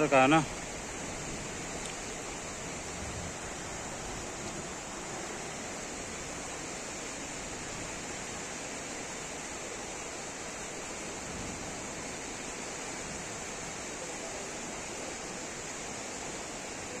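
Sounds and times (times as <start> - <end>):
fast-flowing river rushing: 0.0 - 17.0.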